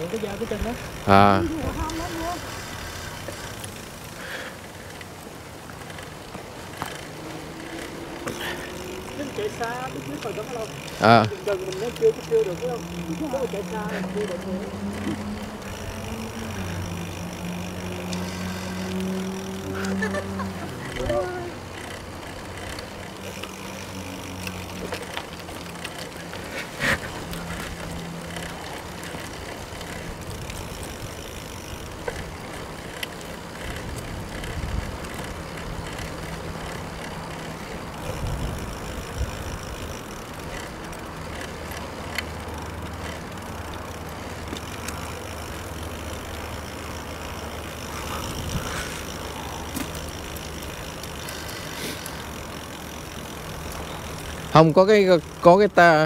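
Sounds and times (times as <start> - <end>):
low hum: 0.0 - 41.0
bike clicks and rattles: 0.0 - 56.0
bike tyre and wind noise: 0.0 - 56.0.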